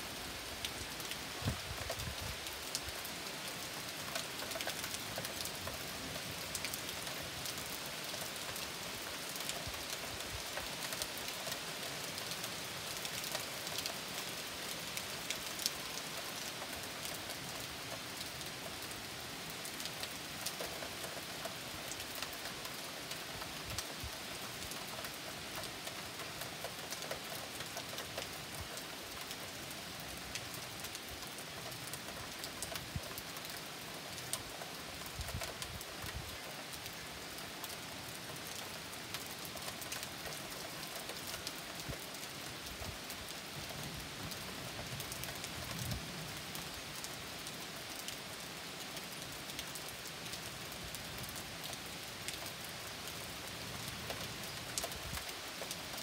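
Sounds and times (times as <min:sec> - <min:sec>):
rain falling on leaves: 0:00.0 - 0:56.0
raindrop ticks: 0:53.7 - 0:56.0.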